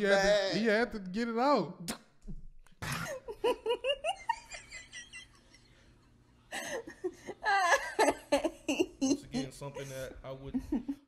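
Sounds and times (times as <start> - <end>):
high-pitched laughter: 6.8 - 9.4.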